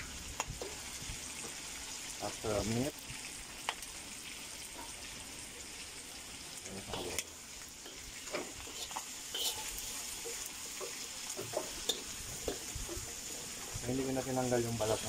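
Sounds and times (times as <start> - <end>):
meat sizzling in a wok: 0.0 - 15.0
spatula scraping a pan: 7.8 - 13.7.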